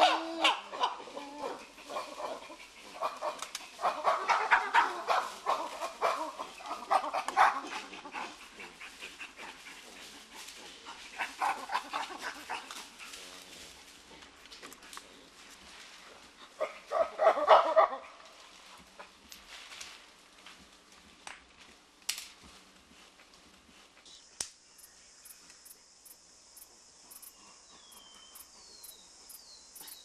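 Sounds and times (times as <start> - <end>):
chimpanzees pant-grunting: 0.0 - 19.2, 26.8 - 28.9.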